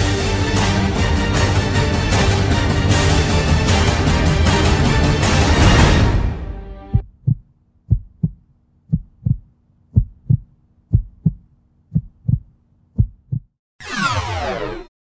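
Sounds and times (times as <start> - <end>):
heartbeat thumps: 6.9 - 13.5
whoosh with falling sweeps: 13.8 - 14.9.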